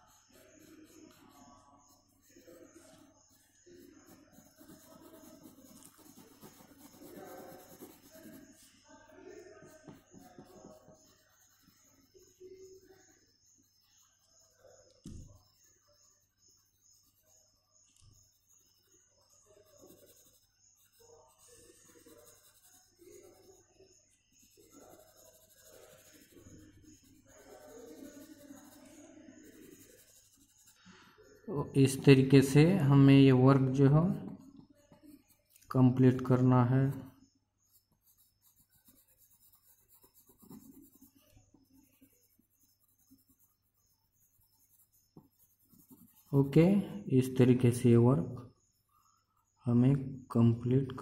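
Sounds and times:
pencil scratching on paper: 0:00.0 - 0:47.7.

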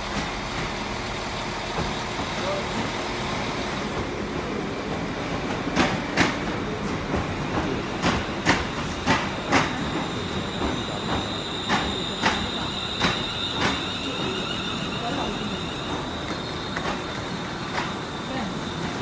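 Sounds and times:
train rolling rumble: 0:00.0 - 0:19.0
train wheels clicking over rail joints: 0:00.1 - 0:19.0.

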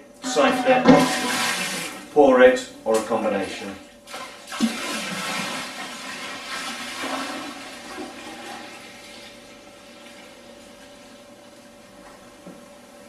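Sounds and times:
liquid gushing and gurgling: 0:00.3 - 0:02.1, 0:04.1 - 0:10.4.

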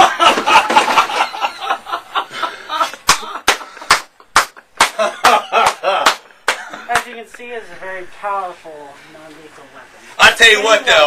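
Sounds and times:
people laughing: 0:00.0 - 0:07.2.

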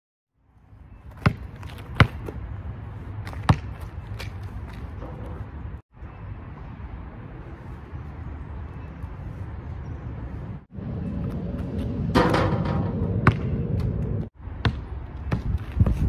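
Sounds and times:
basketball bouncing on asphalt: 0:00.9 - 0:05.7, 0:11.2 - 0:16.0.

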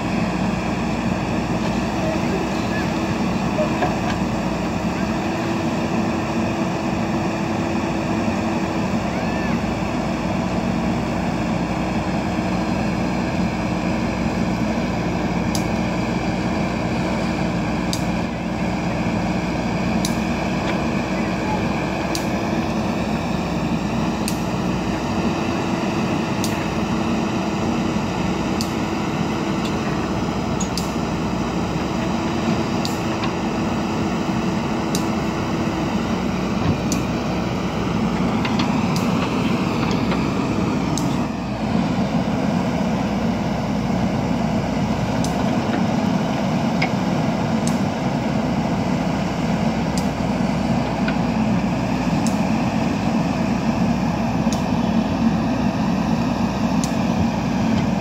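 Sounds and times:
backhoe diesel engine running: 0:00.0 - 0:58.0.

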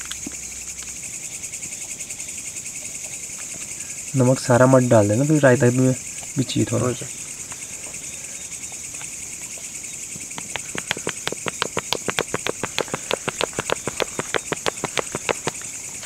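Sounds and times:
crickets chirring: 0:00.0 - 0:16.0
spice shaker clicking: 0:10.3 - 0:15.7.

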